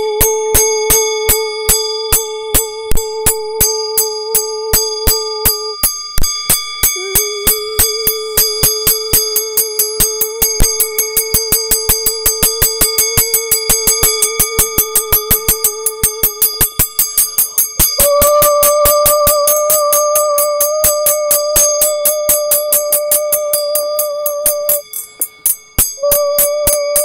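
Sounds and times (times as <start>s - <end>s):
electronic held tone with bell overtones: 0.0s - 27.0s.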